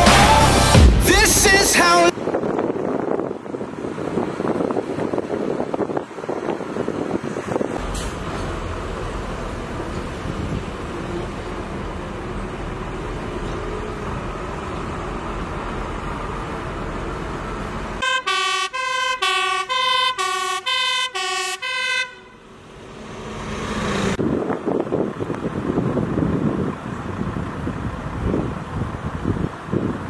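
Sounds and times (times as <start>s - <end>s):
traffic rumble: 1.0s - 30.0s
wind buffeting microphone: 2.1s - 11.5s, 24.2s - 30.0s
fire engine two-tone siren: 18.0s - 22.6s.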